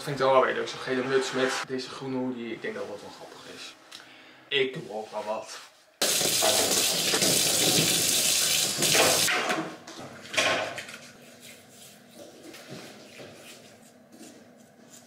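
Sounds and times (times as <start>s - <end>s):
tap running into sink: 6.0s - 9.3s.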